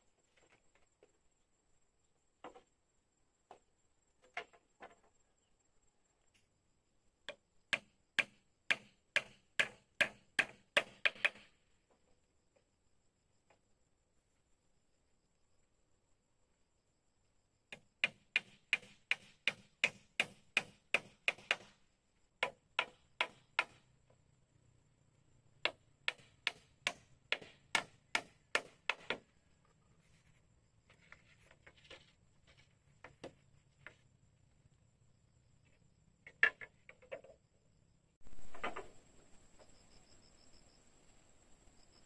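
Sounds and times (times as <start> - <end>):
tool striking bamboo: 7.3 - 11.6, 17.7 - 21.8, 22.4 - 23.8, 25.6 - 29.2.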